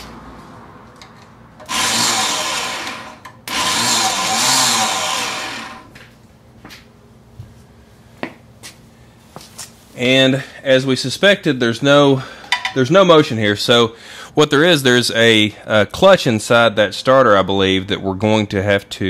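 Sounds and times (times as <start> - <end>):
electric starter motor whirring: 1.6 - 6.0.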